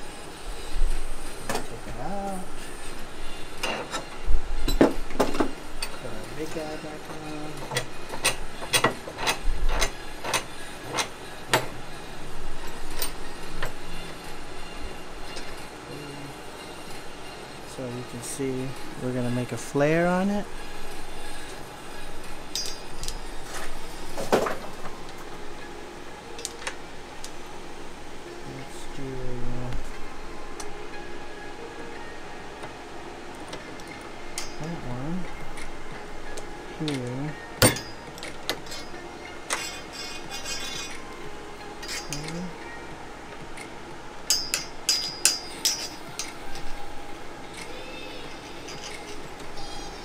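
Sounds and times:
metallic clinks of flaring tool: 22.5s - 23.2s, 33.8s - 34.8s, 37.6s - 41.0s, 41.8s - 42.5s, 44.3s - 46.7s.

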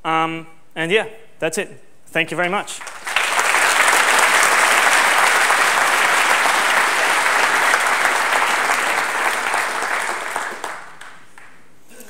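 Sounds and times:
audience applauding: 2.8s - 11.7s.

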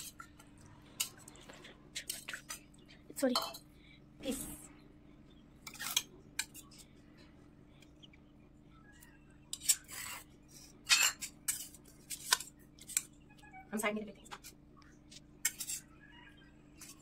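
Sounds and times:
spoon clinking on steel bowls: 3.2s - 3.7s, 10.8s - 13.1s, 15.4s - 15.9s.

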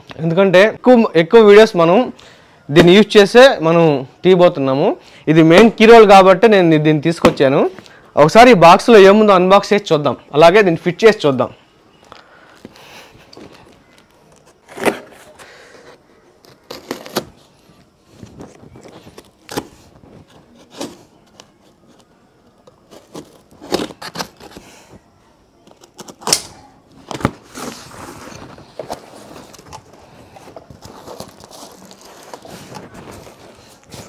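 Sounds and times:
box cutter cutting cardboard: 14.6s - 15.4s, 16.4s - 17.4s, 22.9s - 24.6s
cardboard rustling scrape: 27.0s - 34.0s.

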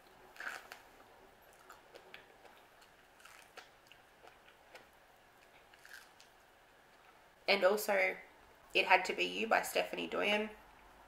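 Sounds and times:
person chewing: 0.3s - 6.4s.

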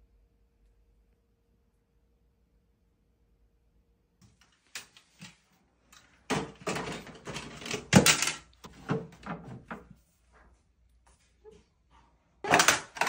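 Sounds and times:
plastic toy cars clattering: 6.3s - 9.4s, 12.4s - 13.0s.

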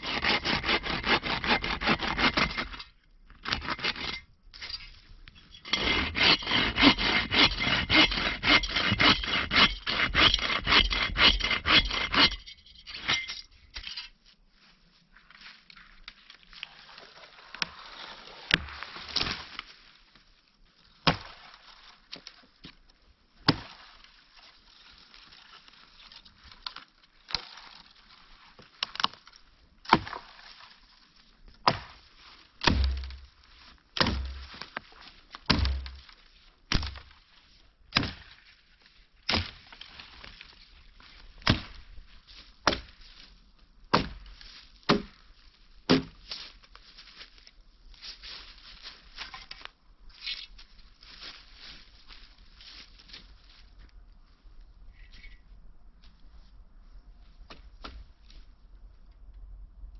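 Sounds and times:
hatchet chopping wood: 5.7s - 12.4s, 21.0s - 21.3s, 23.4s - 23.7s, 29.9s - 30.2s, 31.6s - 32.0s, 32.6s - 33.2s, 34.0s - 34.6s, 35.5s - 36.0s, 36.7s - 37.1s, 37.9s - 38.3s, 39.3s - 39.6s, 41.4s - 41.8s, 42.6s - 42.9s, 43.9s - 44.3s, 44.9s - 45.2s, 45.9s - 46.2s.

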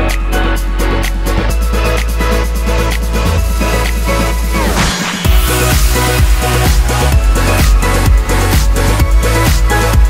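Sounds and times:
electronic dance music: 0.0s - 10.0s
falling sweep: 4.3s - 7.7s.

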